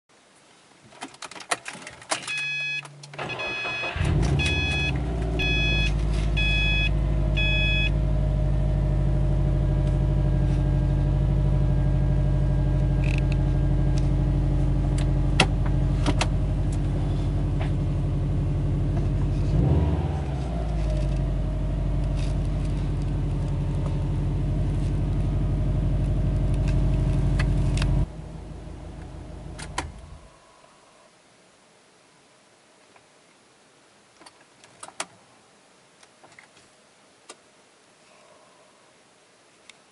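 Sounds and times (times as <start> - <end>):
warning chime beeping: 2.3 - 8.0
car engine starting and idling: 2.3 - 30.3.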